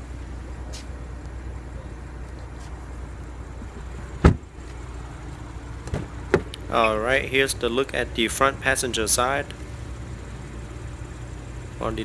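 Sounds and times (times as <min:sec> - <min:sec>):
low background rumble: 0:00.0 - 0:12.0
car door slamming: 0:04.1 - 0:04.5, 0:05.8 - 0:06.5.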